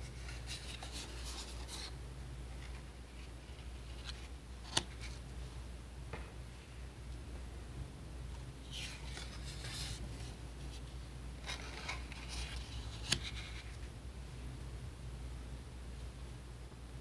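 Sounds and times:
paper cards rustling and scraping: 0.0 - 5.4, 8.4 - 13.9.

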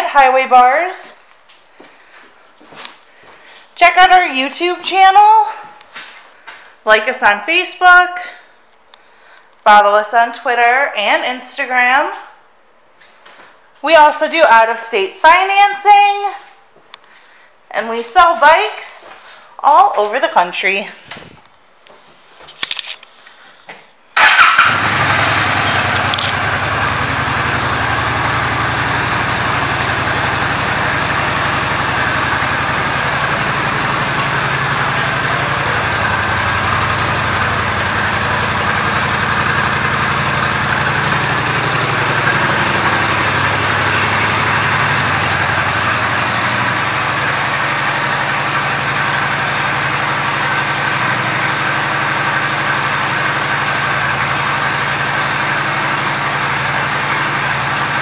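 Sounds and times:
motorcycle engine idling: 24.2 - 58.0.

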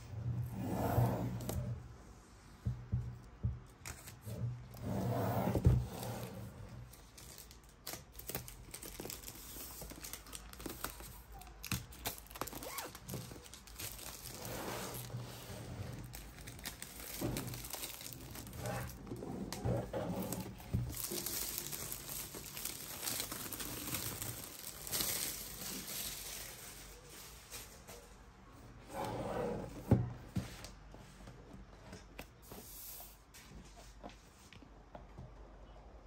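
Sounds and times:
plastic shrink wrap crinkling and tearing: 6.7 - 19.6, 20.2 - 28.0.

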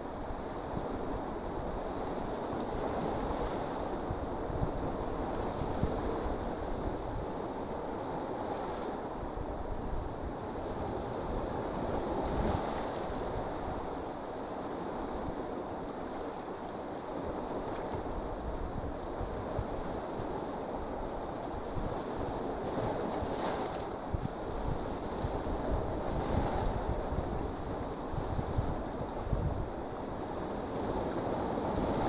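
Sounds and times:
surf washing against rocks: 0.0 - 32.0
wind buffeting microphone: 2.8 - 7.4, 24.1 - 30.0.

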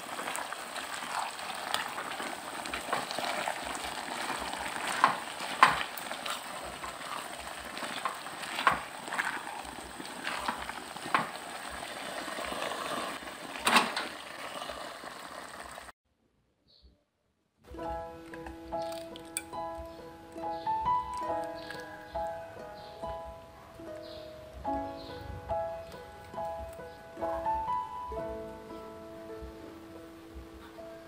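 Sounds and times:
food simmering in pan: 0.0 - 15.9
spatula scraping pan: 1.0 - 14.8.

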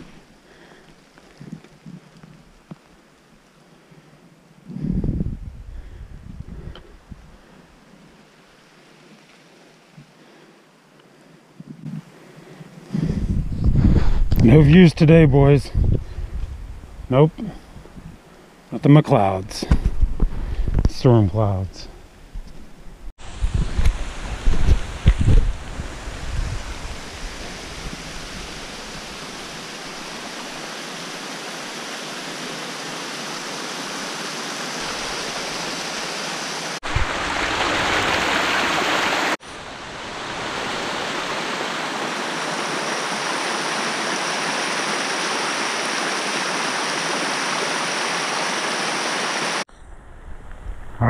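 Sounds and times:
stream water rushing down cascades: 0.0 - 3.8, 23.2 - 49.7.

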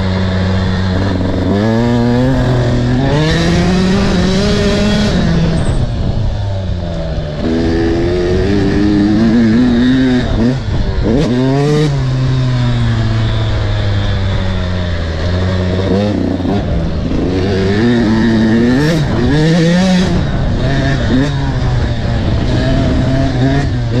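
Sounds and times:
two-stroke motorcycle engine revving: 0.0 - 24.0.

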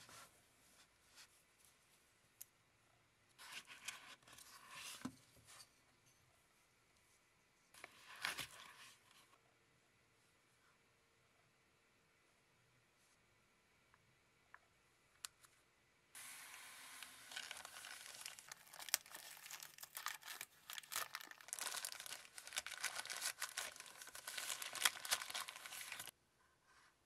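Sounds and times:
plastic wrapping crinkling: 16.4 - 26.1.

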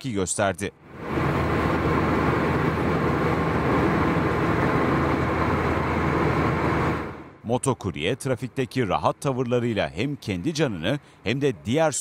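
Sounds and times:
highway traffic rushing: 0.7 - 12.0
low engine hum: 0.8 - 7.4.

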